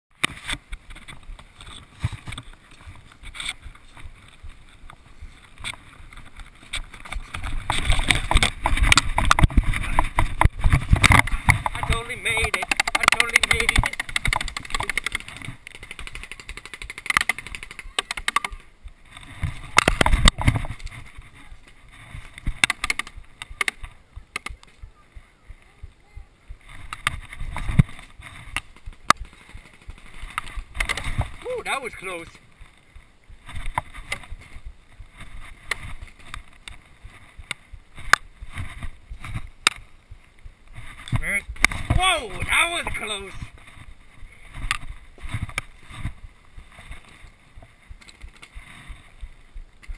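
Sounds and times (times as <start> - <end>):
dry grass rustling and crackling: 0.1 - 25.8, 26.4 - 49.9
paintball markers firing: 11.0 - 18.7.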